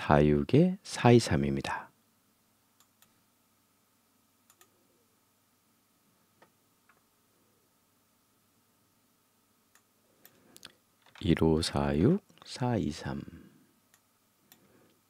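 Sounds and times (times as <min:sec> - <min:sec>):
computer mouse clicks: 0:02.8 - 0:03.2, 0:04.5 - 0:04.8, 0:13.9 - 0:14.7.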